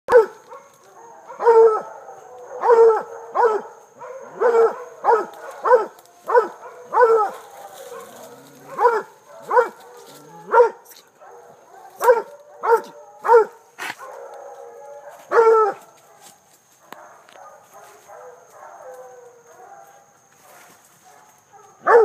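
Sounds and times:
dog baying: 0.1 - 15.8.

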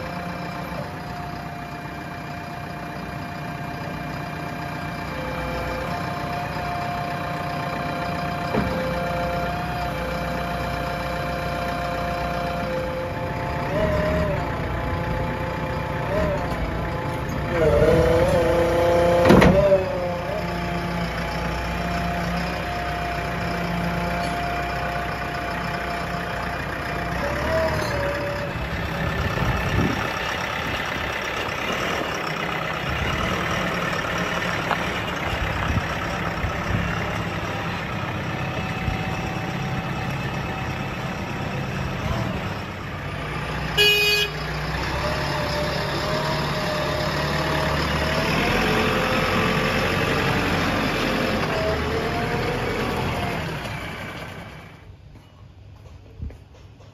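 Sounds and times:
diesel engine running: 0.0 - 56.9
short horn beep: 43.8 - 44.5.

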